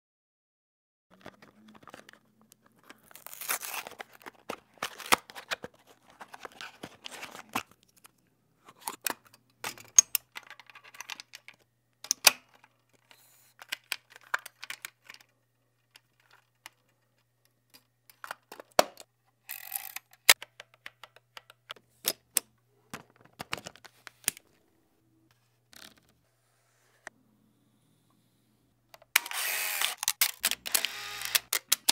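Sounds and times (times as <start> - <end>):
camera mechanical clicks and snaps: 29.2 - 31.9.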